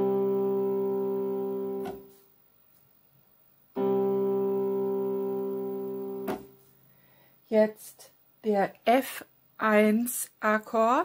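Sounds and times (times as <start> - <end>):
electronic keyboard chord: 0.0 - 2.2, 3.8 - 6.5.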